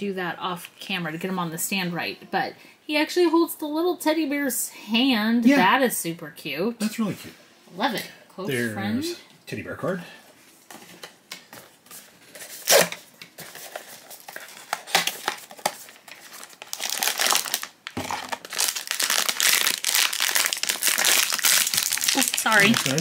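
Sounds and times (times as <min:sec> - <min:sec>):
foil bag crinkling: 0:12.2 - 0:23.0.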